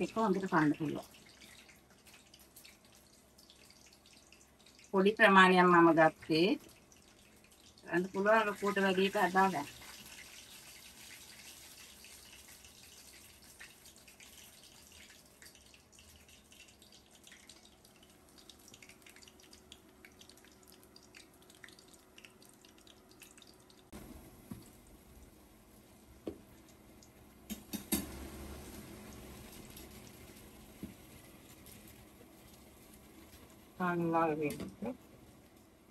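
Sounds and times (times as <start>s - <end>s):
food frying in hot oil: 0.0s - 35.9s.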